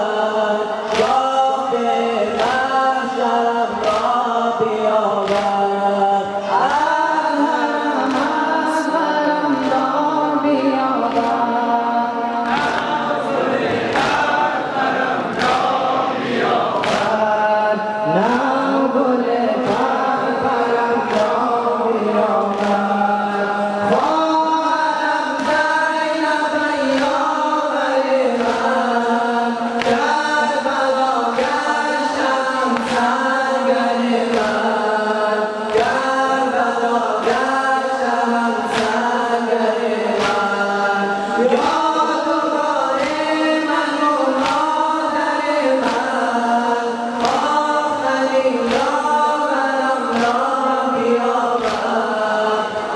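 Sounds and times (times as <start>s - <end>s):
crowd of men singing in chorus: 0.0s - 52.9s
men chanting through microphones: 0.0s - 52.9s
rhythmic chest-beating strikes: 0.0s - 52.9s.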